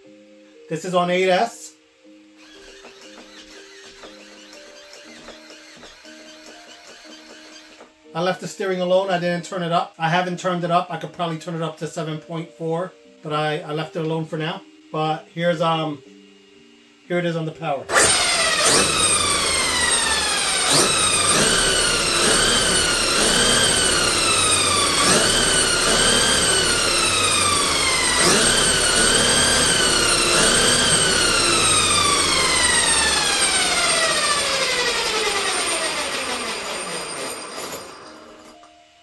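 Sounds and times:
electric motor whining: 0:02.4 - 0:08.0, 0:17.9 - 0:38.6.

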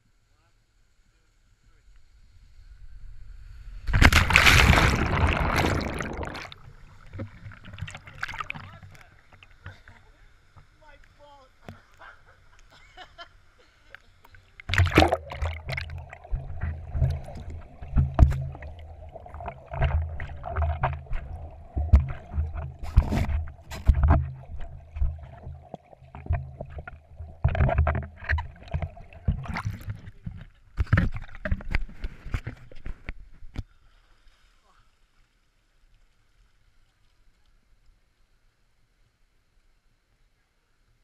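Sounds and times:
muffled underwater rushing: 0:03.6 - 0:10.0, 0:14.6 - 0:33.0.

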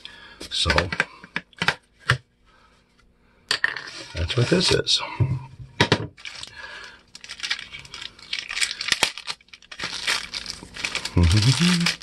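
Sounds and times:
plastic wrapping crinkling: 0:06.2 - 0:12.0.

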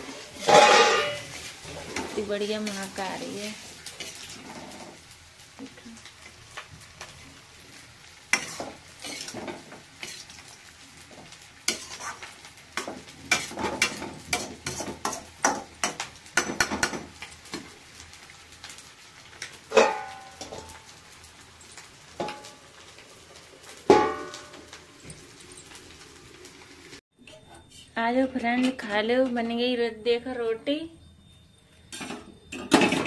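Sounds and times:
metal spatula scraping pan: 0:00.0 - 0:03.0, 0:03.9 - 0:05.0, 0:08.3 - 0:10.4, 0:11.7 - 0:15.6
vegetables sizzling: 0:00.0 - 0:33.0.

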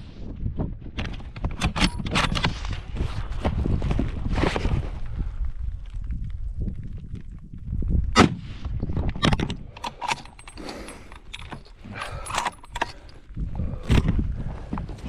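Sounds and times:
camera rubbing against rock: 0:02.4 - 0:05.0.

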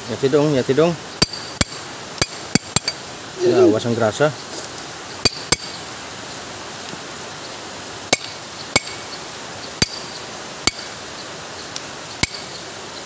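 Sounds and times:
hammer tapping steel punch: 0:09.8 - 0:10.0, 0:12.2 - 0:12.4.

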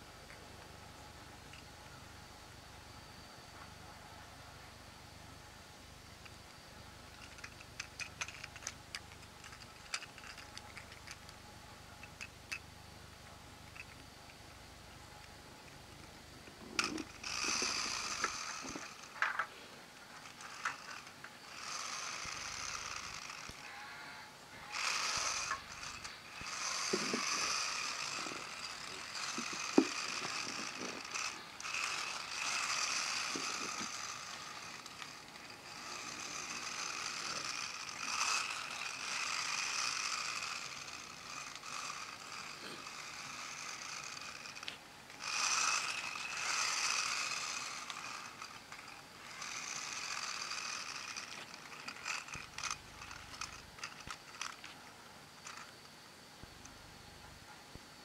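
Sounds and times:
toy train motor whirring: 0:00.0 - 0:57.4
sharp clicks and knocks: 0:15.2 - 0:21.4, 0:25.0 - 0:35.5.

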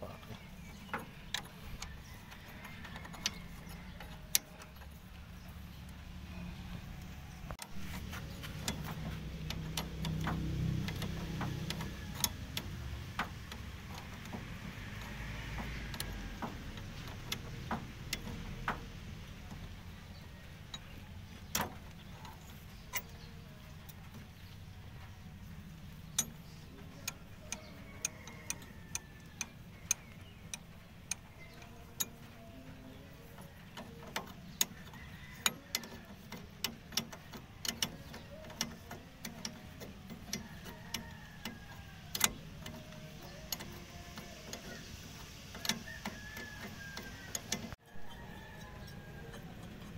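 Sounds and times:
spanner clicking on bolts: 0:00.0 - 0:49.9.

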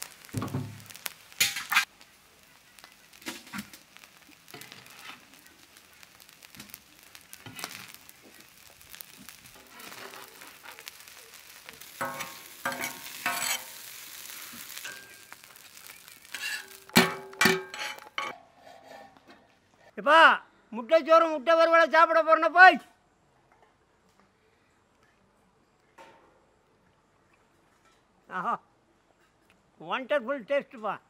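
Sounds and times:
light sizzling: 0:00.0 - 0:19.9
metal spatula scraping griddle: 0:00.4 - 0:01.9, 0:03.2 - 0:08.0, 0:09.0 - 0:19.9
spatula clanking on steel pot: 0:12.0 - 0:13.8, 0:16.4 - 0:18.4.

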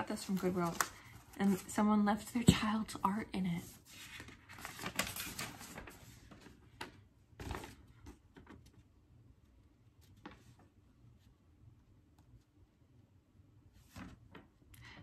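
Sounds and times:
paper rustling: 0:00.0 - 0:01.8, 0:03.6 - 0:08.8.

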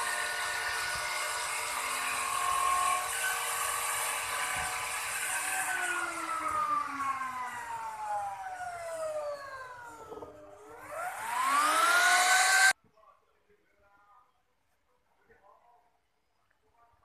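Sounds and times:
router whining: 0:00.0 - 0:12.8.

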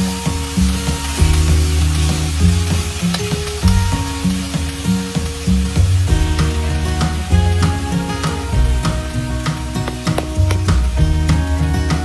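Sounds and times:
food sizzling in a frying pan: 0:00.0 - 0:12.0
instrumental music with a beat: 0:00.0 - 0:12.0.

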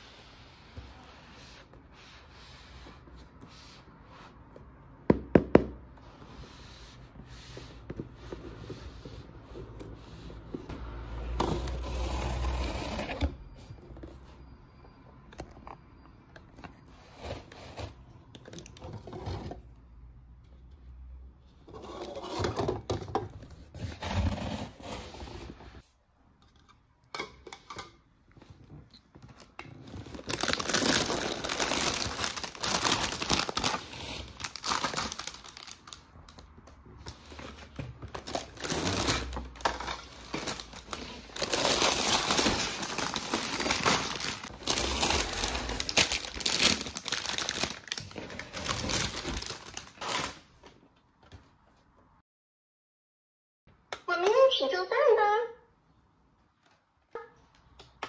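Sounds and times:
packaging crinkling and rustling: 0:28.6 - 0:50.8.

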